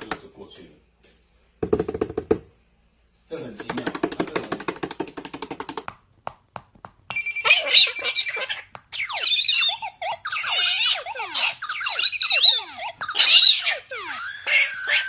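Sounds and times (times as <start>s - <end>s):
ringing alarm-like tone: 7.1s - 13.3s.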